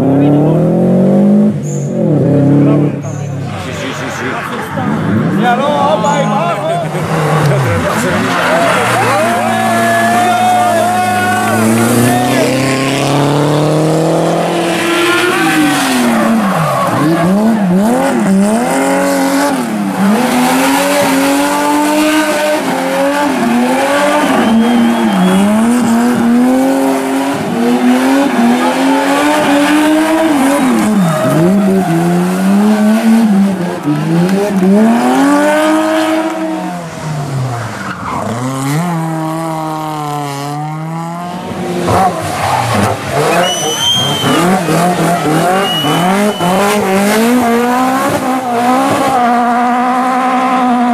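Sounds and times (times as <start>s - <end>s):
rally car engine revving: 0.0s - 50.9s
tyres squealing: 14.6s - 21.2s, 41.9s - 47.4s.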